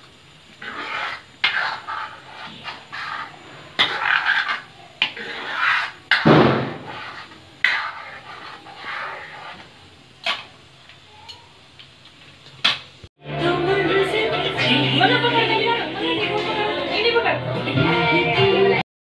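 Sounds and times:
ladle scraping and knocking pan: 0:00.6 - 0:10.5.

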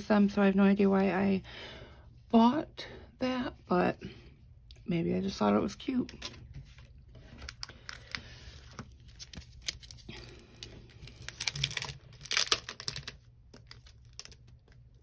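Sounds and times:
plastic and paper crinkling: 0:06.2 - 0:15.0.

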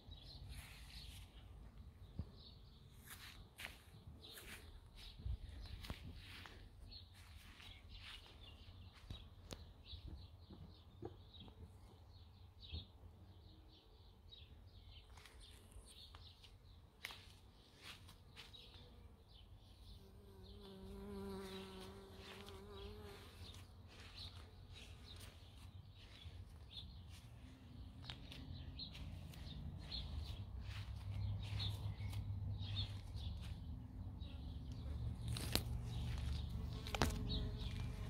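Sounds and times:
flying insect buzzing: 0:20.1 - 0:23.4, 0:36.6 - 0:38.0.

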